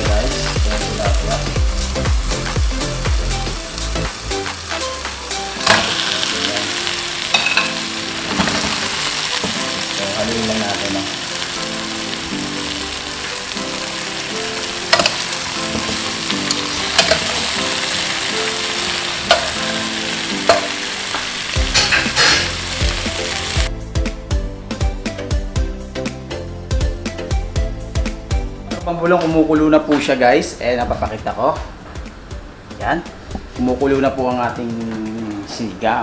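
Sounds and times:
vegetables sizzling in a pot: 0:00.0 - 0:23.7.

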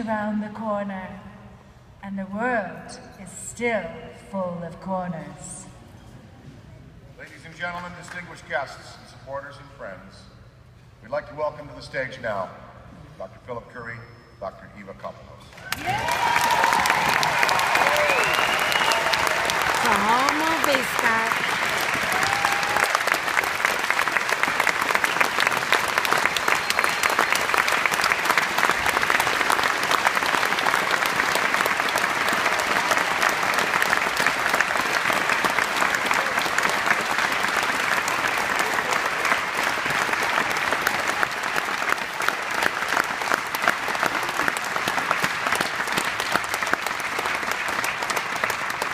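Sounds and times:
audience applauding: 0:15.6 - 0:48.9.

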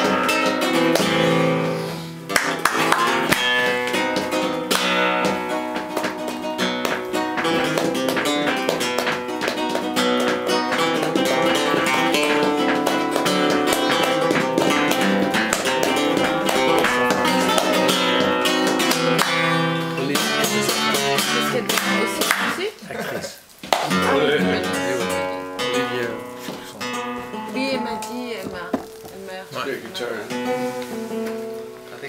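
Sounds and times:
hand clapping: 0:00.0 - 0:22.7, 0:23.6 - 0:29.2
flamenco acoustic guitar: 0:00.0 - 0:32.0.

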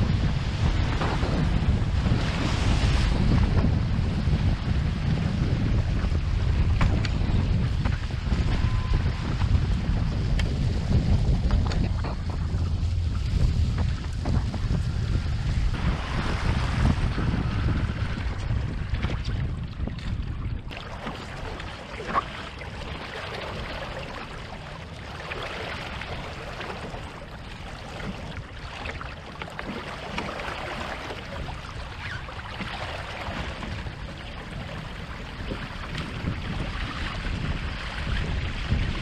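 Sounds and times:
water rushing along boat hulls: 0:00.0 - 0:39.0.

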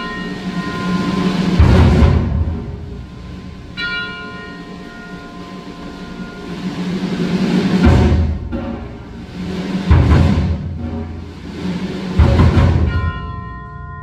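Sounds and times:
bell note ringing: 0:00.0 - 0:01.6, 0:03.3 - 0:07.0, 0:12.9 - 0:14.0
timpani roll: 0:00.0 - 0:13.6.

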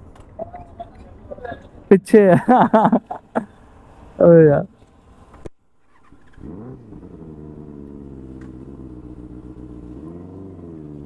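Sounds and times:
motorcycle engine starting and idling: 0:05.8 - 0:11.0.

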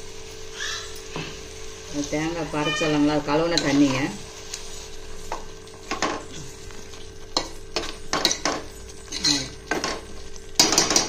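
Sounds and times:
low sizzle: 0:00.0 - 0:11.0
spoon scraping a pan: 0:07.3 - 0:10.0.

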